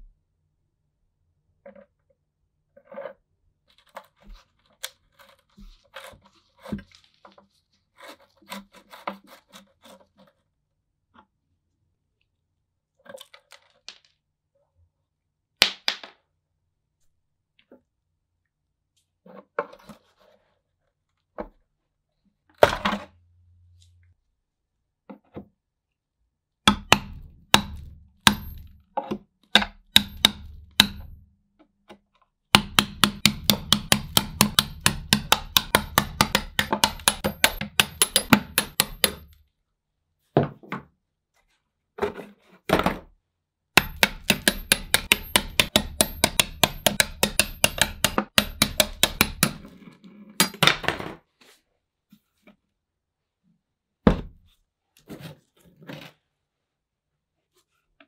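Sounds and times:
hammer striking metal punch: 26.7s - 28.9s, 29.6s - 31.2s, 32.5s - 39.4s, 43.8s - 49.6s.

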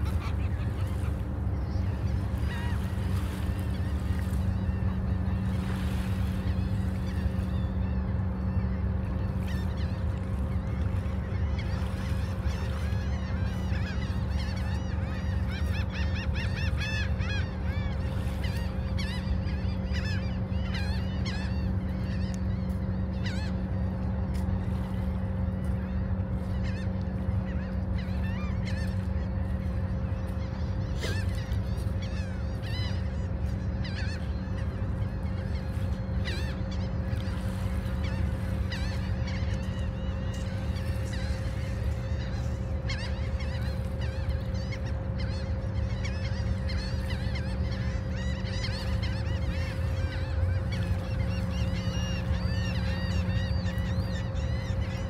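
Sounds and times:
gulls calling: 0.0s - 55.0s
low hum and rumble: 0.0s - 55.0s.

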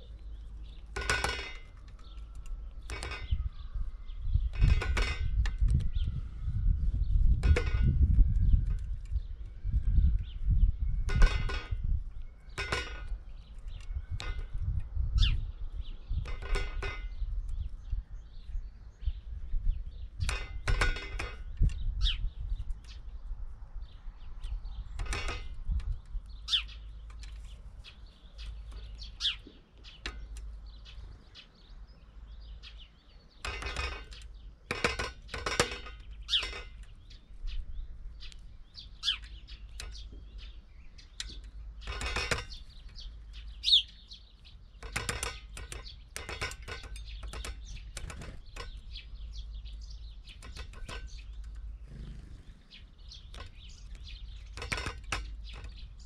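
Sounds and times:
high bird chirps: 0.0s - 20.5s, 21.4s - 56.0s
woodpecker tapping: 38.2s - 56.0s.

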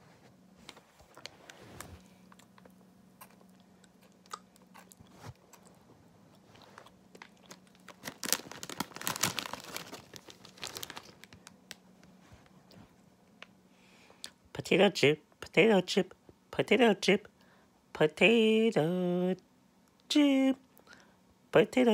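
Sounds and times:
potato chips crunching: 2.2s - 11.8s
bag crinkling: 6.5s - 11.9s.

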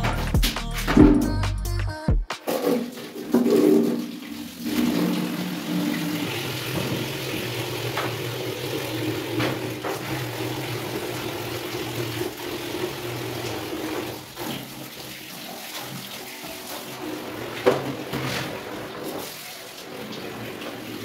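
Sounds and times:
tap water running into bucket: 2.4s - 21.0s
hands rinsing cloth splashing: 2.5s - 12.4s.

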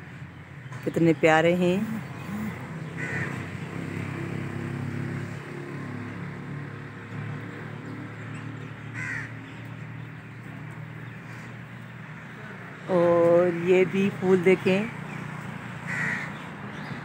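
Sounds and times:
crows cawing: 2.1s - 3.5s, 8.8s - 9.6s, 15.8s - 16.5s.

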